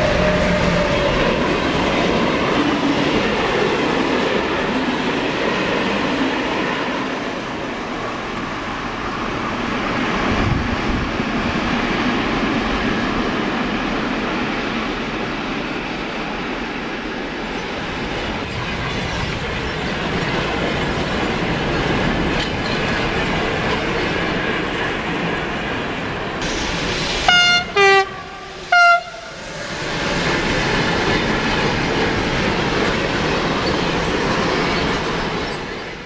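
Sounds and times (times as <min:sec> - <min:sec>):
train wheels rumbling on rails: 0:00.0 - 0:36.0
locomotive horn blasts: 0:27.2 - 0:29.4.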